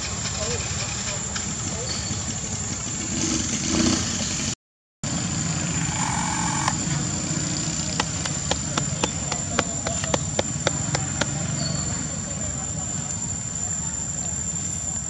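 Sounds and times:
constant high whine: 0:05.1 - 0:15.0.

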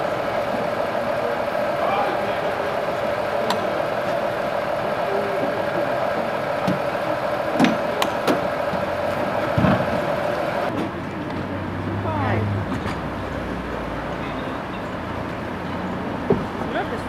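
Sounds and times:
truck diesel engine idling: 0:00.0 - 0:17.0
knocks and clanks: 0:05.4 - 0:11.4.

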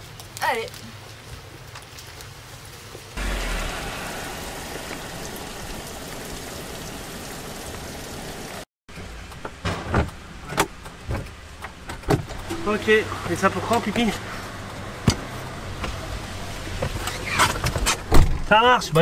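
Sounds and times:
short loud sounds: 0:03.2 - 0:07.3
heavy rain on vehicle: 0:03.2 - 0:08.7.

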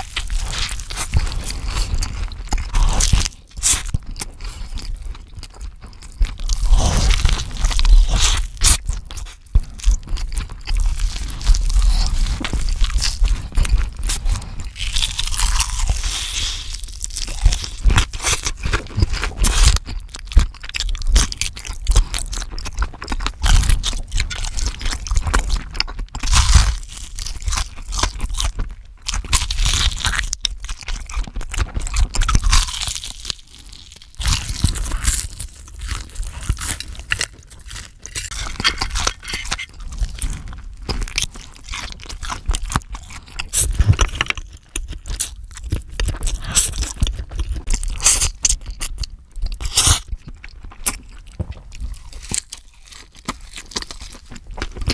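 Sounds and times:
crunching bites: 0:00.0 - 0:54.9
wet chewing: 0:00.0 - 0:54.9
noodles slurped: 0:05.8 - 0:19.9.

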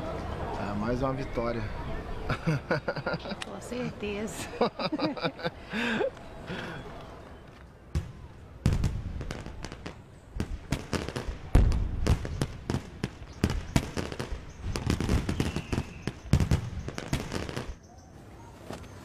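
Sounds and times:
firecrackers banging: 0:08.0 - 0:17.8.

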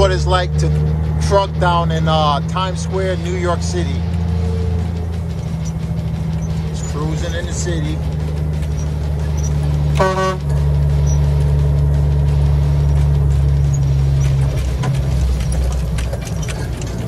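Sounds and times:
diesel truck engine droning: 0:00.0 - 0:17.0
truck horn honk: 0:09.5 - 0:11.6.

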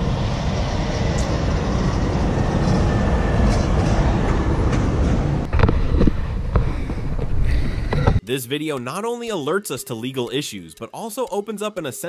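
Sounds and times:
road traffic passing: 0:00.0 - 0:08.2.

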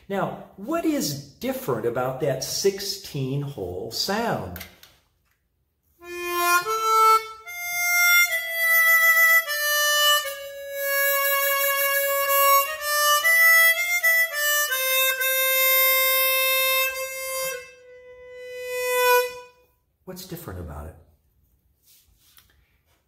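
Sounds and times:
chromatic harmonica melody: 0:05.9 - 0:19.9.

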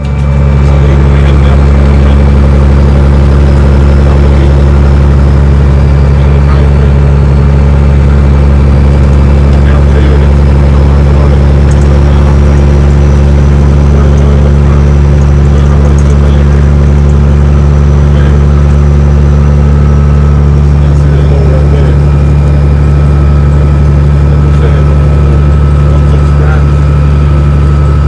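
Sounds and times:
truck diesel engine droning: 0:00.0 - 0:28.0.

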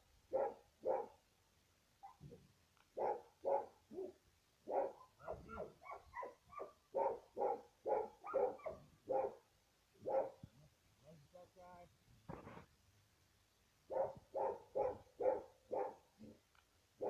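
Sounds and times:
dog barking: 0:00.3 - 0:01.2, 0:03.0 - 0:10.4, 0:13.9 - 0:16.4
high-pitched dog yips: 0:02.0 - 0:02.4, 0:04.7 - 0:09.3.

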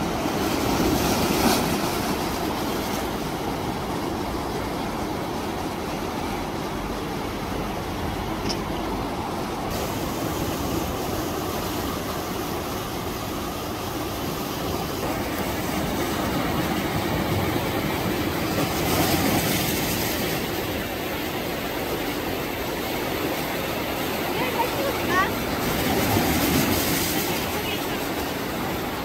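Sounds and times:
surf washing up the shore: 0:00.0 - 0:29.0
waves breaking on concrete blocks: 0:14.5 - 0:21.2, 0:23.9 - 0:29.0.

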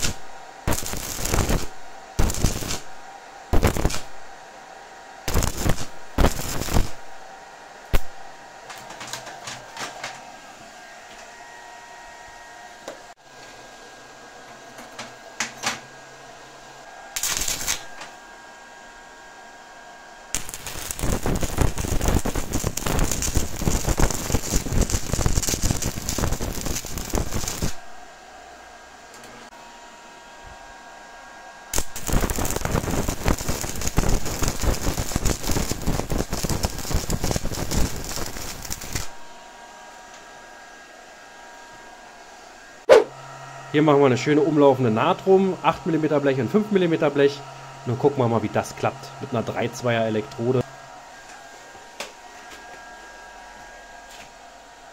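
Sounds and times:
welding arc crackling: 0:00.0 - 0:04.3, 0:05.2 - 0:07.2, 0:07.9 - 0:09.3, 0:17.2 - 0:18.1, 0:20.3 - 0:28.0, 0:31.7 - 0:39.3.

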